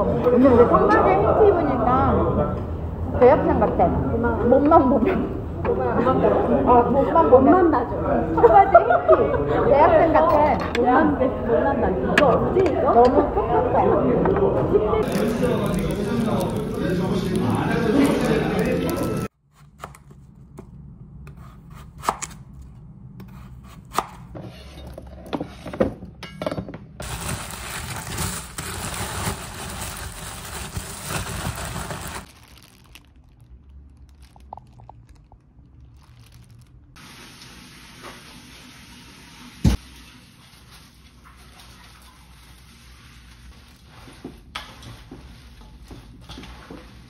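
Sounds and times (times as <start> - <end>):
plastic bag crumpling: 15.0 - 19.3, 27.0 - 37.0.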